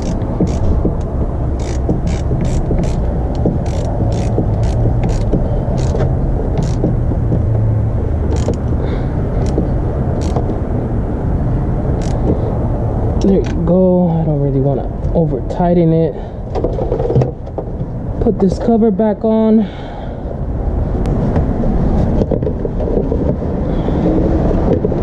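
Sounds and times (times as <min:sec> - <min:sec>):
socket ratchet clicking: 0:00.0 - 0:07.4, 0:08.2 - 0:08.8, 0:09.4 - 0:10.6, 0:12.0 - 0:12.4.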